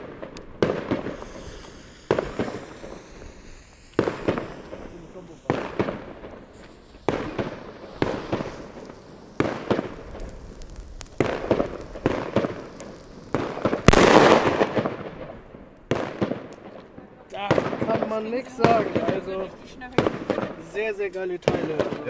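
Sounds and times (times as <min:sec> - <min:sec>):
fuse spraying sparks: 0:00.0 - 0:14.8
loud echoing explosion: 0:00.0 - 0:16.5
firecracker bangs: 0:00.0 - 0:16.8, 0:21.4 - 0:22.0.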